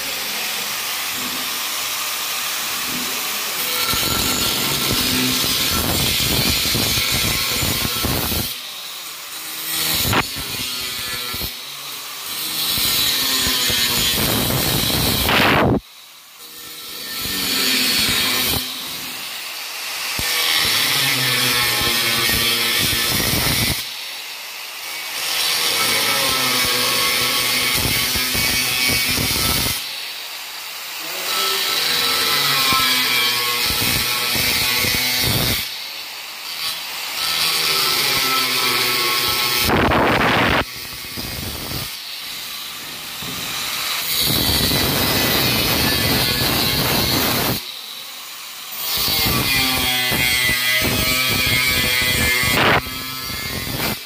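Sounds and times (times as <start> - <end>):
angle grinder cutting metal: 0.0 - 54.0.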